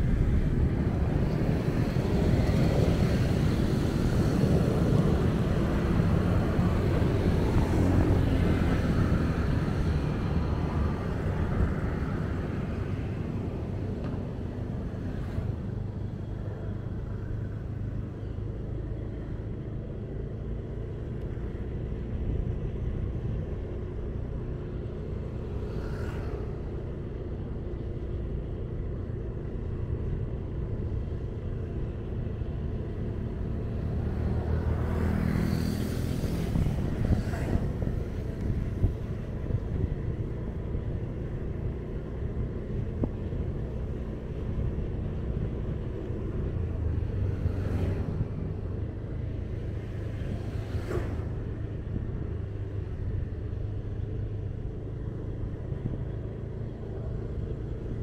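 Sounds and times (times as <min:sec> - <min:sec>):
low rumble of traffic ride: 0:00.0 - 0:58.0
vehicle passing: 0:33.6 - 0:39.8.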